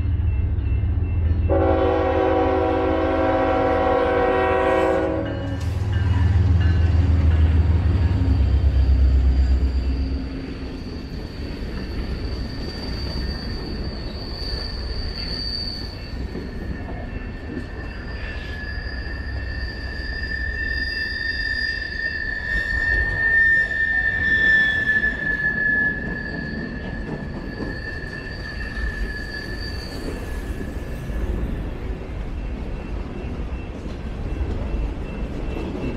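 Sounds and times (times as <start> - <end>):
train air horn blast: 1.5 - 5.4
high-pitched wheel squeal: 7.6 - 17.0, 17.7 - 31.4.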